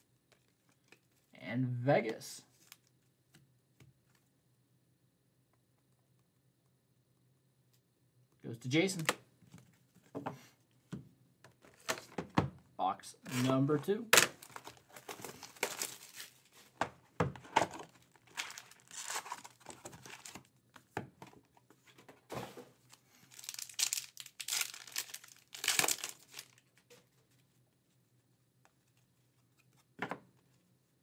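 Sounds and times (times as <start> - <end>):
plastic wrap tearing: 14.2 - 16.4, 17.8 - 20.4, 23.3 - 26.6
foil packs crinkling and ripping: 14.2 - 16.5, 17.6 - 20.5, 22.9 - 26.7.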